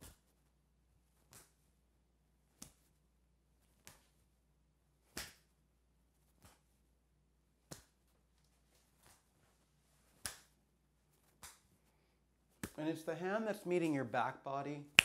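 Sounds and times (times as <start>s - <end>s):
hands slapping body: 0.0s - 0.3s, 1.2s - 1.7s, 2.5s - 3.0s, 3.6s - 4.2s, 5.0s - 5.5s, 6.3s - 6.8s, 7.6s - 9.3s, 10.1s - 11.8s, 12.5s - 12.9s.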